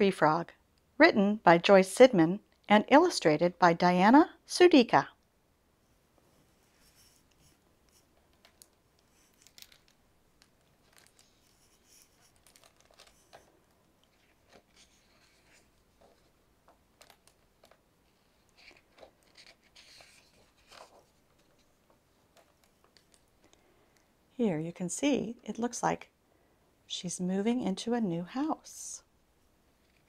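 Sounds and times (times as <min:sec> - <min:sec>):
book pages turning: 0:06.7 - 0:16.4, 0:17.0 - 0:23.3.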